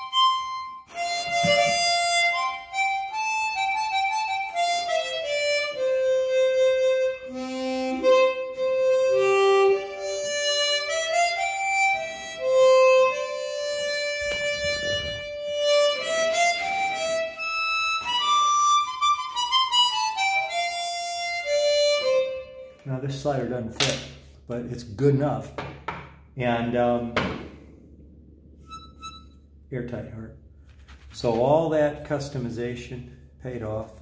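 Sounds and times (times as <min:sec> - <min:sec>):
harmonica slow melody: 0:00.0 - 0:23.0, 0:28.5 - 0:29.7.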